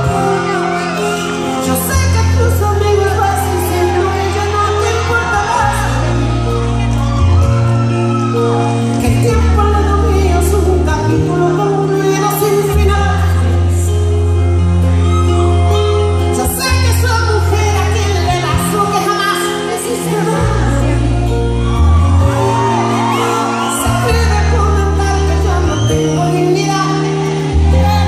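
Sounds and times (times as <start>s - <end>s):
woman singing a ballad: 0.0s - 6.6s, 8.7s - 14.5s, 15.8s - 28.0s
low bass notes: 0.0s - 18.9s
band playing: 0.0s - 28.0s.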